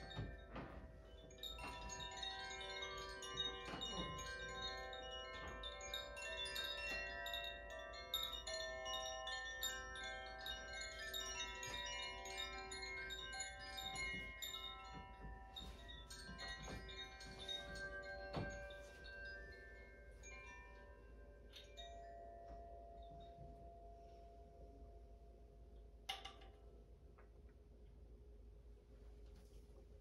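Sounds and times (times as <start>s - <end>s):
chimes ringing: 0.0s - 23.5s.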